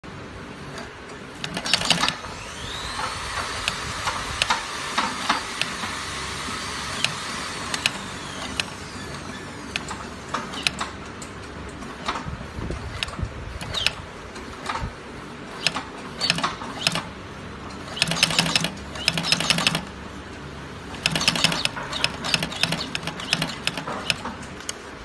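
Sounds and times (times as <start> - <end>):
sharp clicks: 1.4 - 5.9, 7.0 - 12.3, 12.9 - 14.0, 15.6 - 17.1, 17.9 - 19.9, 20.9 - 24.8
sewing machine motor whine: 1.4 - 10.9, 15.6 - 17.1, 17.8 - 19.9, 20.9 - 24.3.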